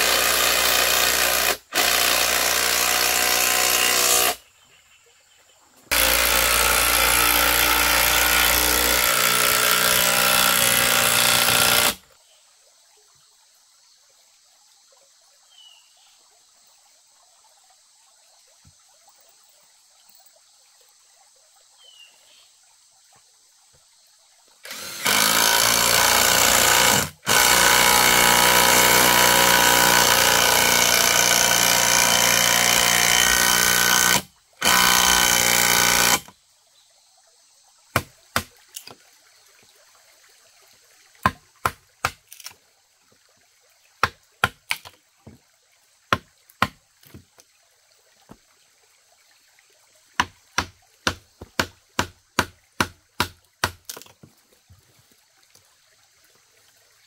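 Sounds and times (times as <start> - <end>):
impact driver running: 0.0 - 4.4, 5.9 - 12.0, 24.7 - 36.3.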